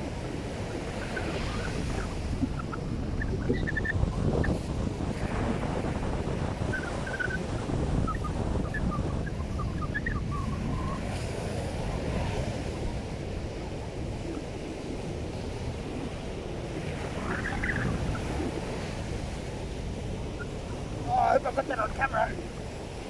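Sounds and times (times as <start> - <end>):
wind buffeting microphone: 0.0 - 23.0
surf breaking on beach: 10.7 - 23.0.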